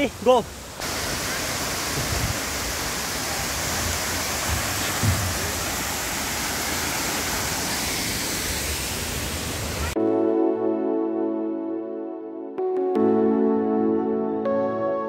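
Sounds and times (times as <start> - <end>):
waterfall rushing: 0.0 - 10.0.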